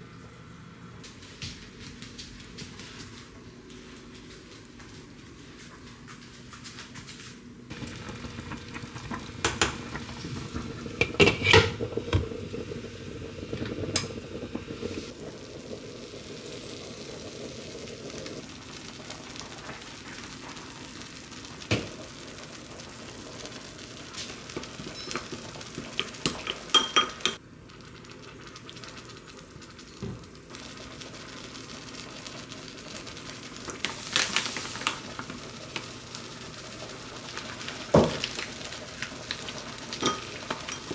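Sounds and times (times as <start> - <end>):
wooden spoon clinking glass bowl: 26.7 - 27.4.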